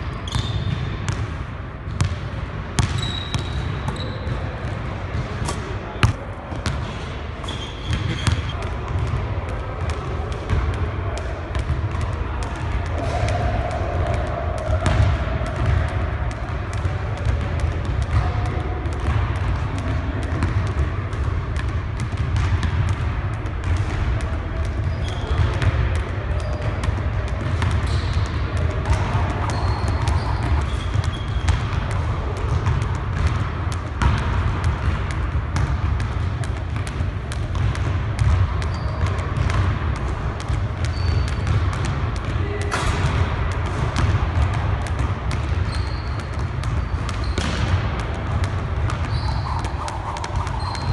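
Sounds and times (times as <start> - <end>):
sneakers landing on floor: 5.5 - 6.2
jump rope slapping floor: 47.8 - 50.9.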